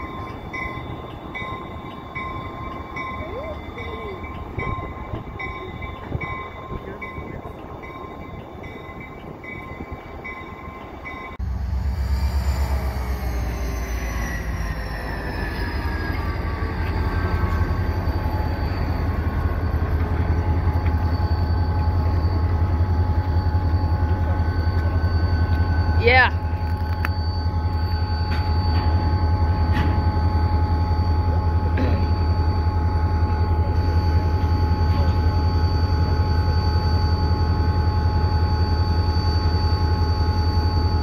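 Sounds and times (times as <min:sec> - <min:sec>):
locomotive engine throbbing: 0:00.0 - 0:41.0
locomotive whine falling in pitch: 0:11.4 - 0:41.0.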